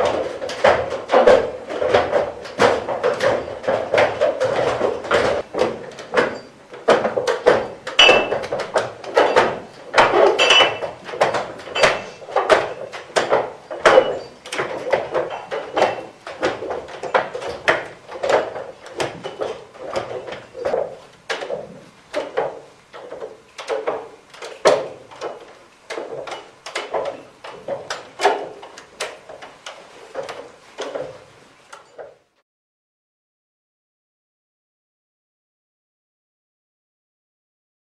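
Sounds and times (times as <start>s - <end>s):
glass bottles clacking on wood: 0.0s - 23.8s.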